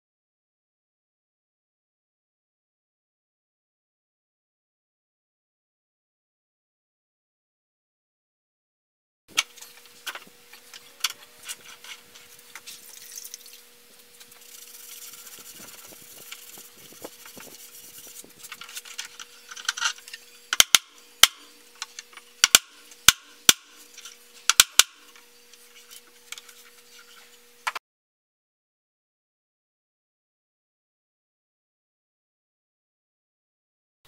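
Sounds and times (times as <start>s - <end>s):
pipe clamps rubbing and scraping: 9.3s - 27.6s
faint steady hum: 9.3s - 27.8s
sharp metallic clicks: 20.5s - 23.7s.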